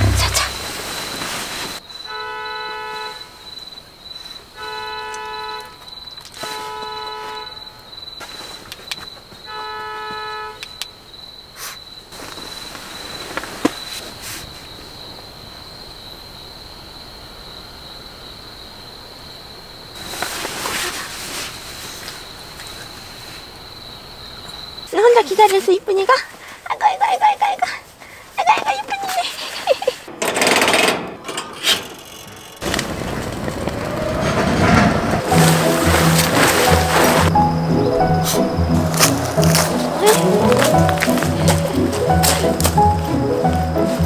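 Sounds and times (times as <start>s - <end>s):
high insect trill: 0.0s - 30.1s, 34.7s - 44.0s
car horn blasts: 4.6s - 5.8s, 6.4s - 7.6s, 9.5s - 10.6s.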